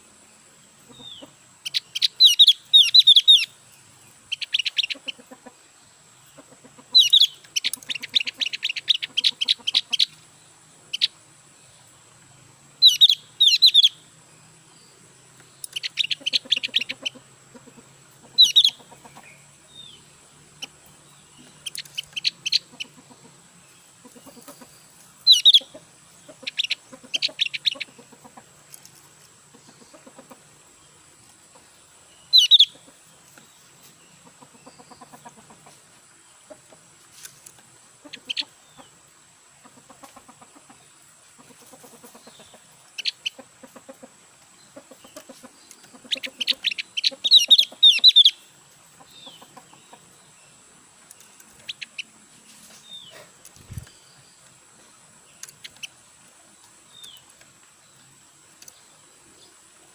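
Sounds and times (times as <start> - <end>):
bird chirping sharply: 6.9 - 10.2, 12.8 - 14.0, 18.4 - 18.8, 25.2 - 25.7, 32.2 - 32.8.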